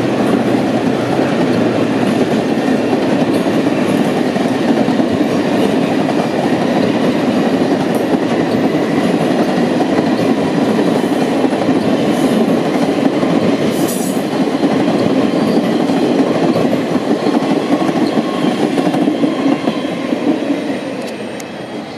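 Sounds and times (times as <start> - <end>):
clickety-clack over rail joints: 0.0 - 21.5
train wheels rumbling on rails: 0.0 - 21.9.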